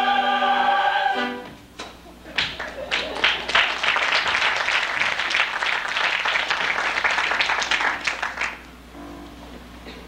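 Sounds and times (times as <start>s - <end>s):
audience applauding: 2.3s - 8.7s.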